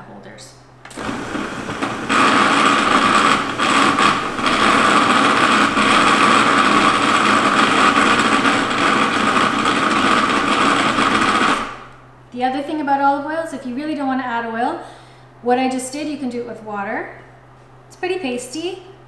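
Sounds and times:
food processor running: 0:00.9 - 0:12.0.

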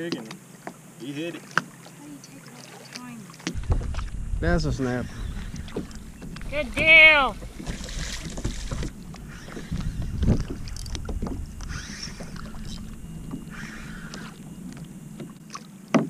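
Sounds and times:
water lapping against hull: 0:00.0 - 0:16.0
small knocks on kayak: 0:03.4 - 0:04.2, 0:15.2 - 0:16.0
wind rumble on microphone: 0:03.5 - 0:15.4.

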